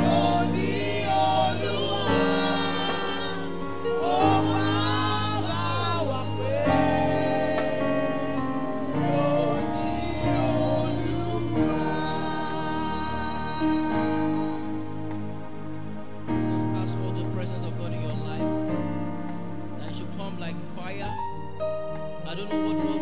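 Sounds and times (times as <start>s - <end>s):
people singing gospel: 0.0s - 15.1s
held accompaniment chords: 0.0s - 23.0s.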